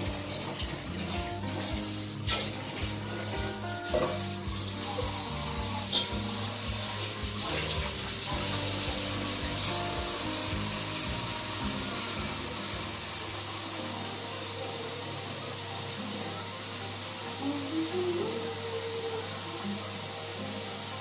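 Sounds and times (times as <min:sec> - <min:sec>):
background music: 0:00.0 - 0:21.0
tap running water into pot: 0:00.0 - 0:21.0
steel dishes clinking: 0:05.8 - 0:11.6.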